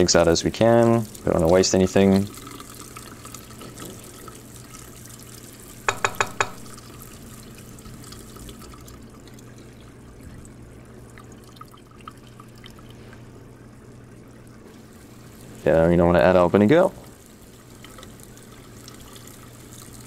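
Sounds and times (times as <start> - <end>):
tap water running into sieve: 0.0 - 20.0
sharp knocks: 5.9 - 6.7.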